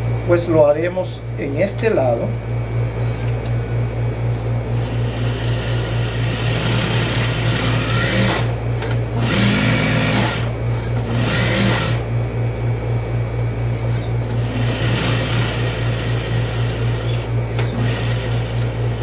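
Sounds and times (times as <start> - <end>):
steady low hum: 0.0 - 19.0
sewing machine stitching: 4.8 - 8.5, 9.2 - 10.5, 11.1 - 12.0, 14.4 - 19.0.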